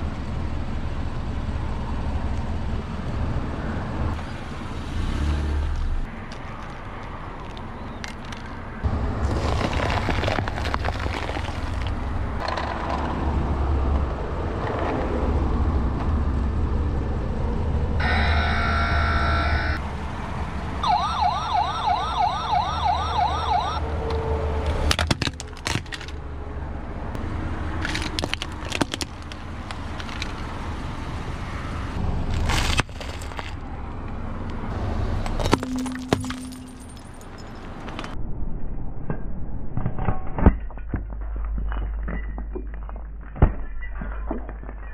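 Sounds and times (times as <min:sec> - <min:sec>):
toy electronic siren wailing: 0:18.0 - 0:19.8, 0:20.8 - 0:23.8.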